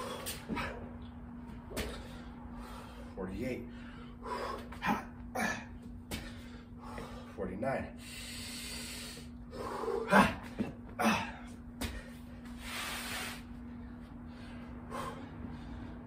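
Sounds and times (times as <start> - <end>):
man breathing hard: 0.0 - 1.0, 1.8 - 16.0
man grunting: 4.8 - 5.8, 9.9 - 11.5.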